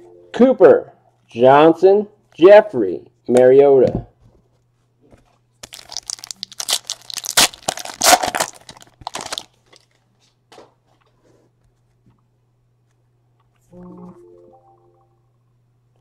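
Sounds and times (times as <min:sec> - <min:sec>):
plastic wrapper tearing and crinkling: 0:05.6 - 0:10.0.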